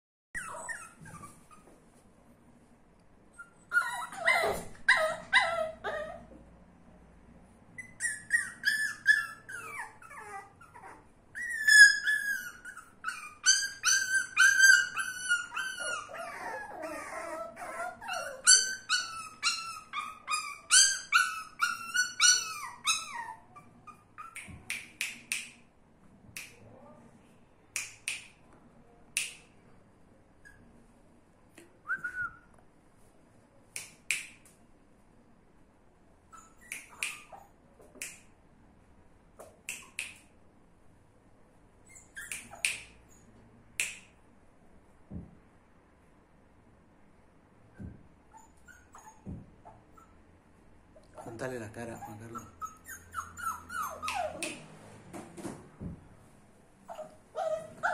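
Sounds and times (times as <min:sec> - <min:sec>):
puppies whimpering and whining: 0:00.4 - 0:01.7, 0:03.3 - 0:06.3, 0:07.8 - 0:24.5, 0:48.3 - 0:50.2, 0:51.2 - 0:54.6, 0:56.9 - 0:57.9
puppy yips: 0:00.4 - 0:01.8, 0:03.3 - 0:06.3, 0:07.8 - 0:25.2, 0:36.3 - 0:37.6, 0:41.8 - 0:44.0, 0:47.8 - 0:50.2, 0:51.9 - 0:54.7, 0:56.9 - 0:57.9.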